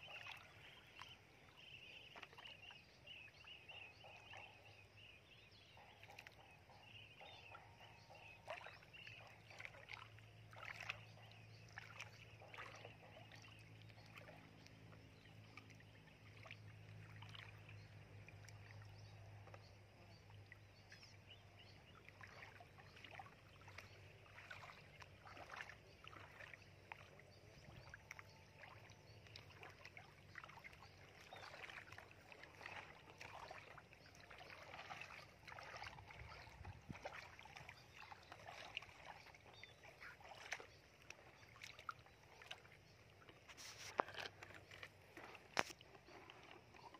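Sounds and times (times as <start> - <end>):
splashing in muddy water: 0.0 - 5.0, 5.9 - 46.9.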